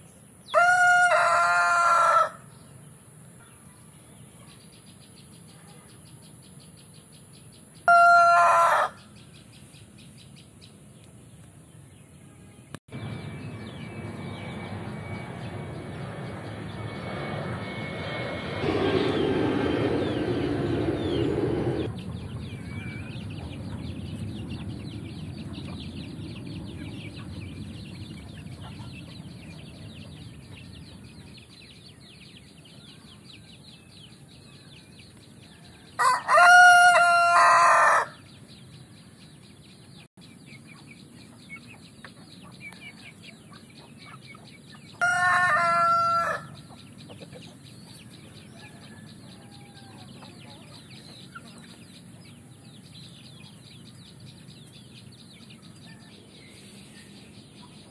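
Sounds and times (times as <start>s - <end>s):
rooster crowing: 0.5s - 2.5s, 7.8s - 9.1s, 35.5s - 38.2s, 45.0s - 46.6s, 48.5s - 50.1s
steady rushing noise: 12.9s - 31.6s.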